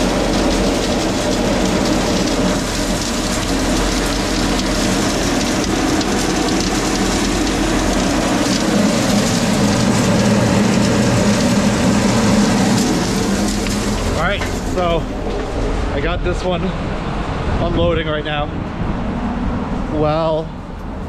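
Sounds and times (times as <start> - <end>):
salt spreader conveyor running: 0.0 - 16.8
truck engine running: 0.0 - 21.0.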